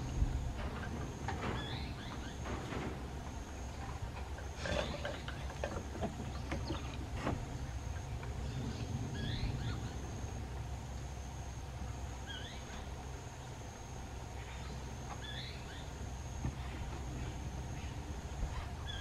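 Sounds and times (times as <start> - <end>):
wooden swing knocking and clicking: 0.0 - 7.6
low rumble: 2.9 - 13.7.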